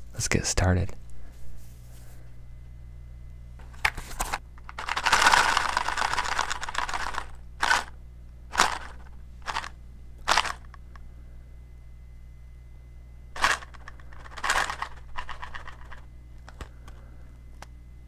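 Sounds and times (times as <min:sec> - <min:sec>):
matchbox rustling: 0:13.4 - 0:16.7.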